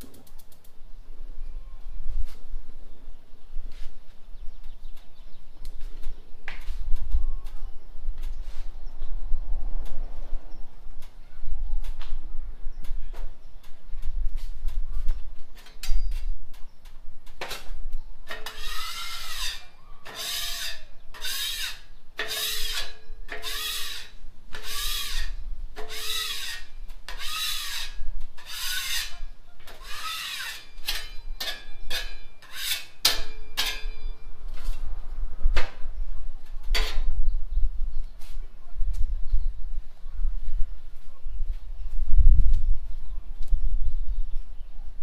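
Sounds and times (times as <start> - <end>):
tool scraping steel griddle: 17.4 - 34.7.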